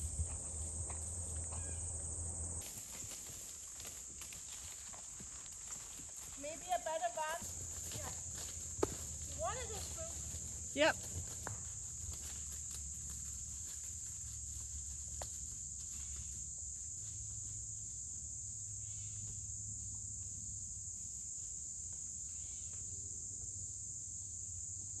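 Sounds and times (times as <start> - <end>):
faint low rumble: 0.0 - 2.6
high-pitched insect chorus: 0.0 - 25.0.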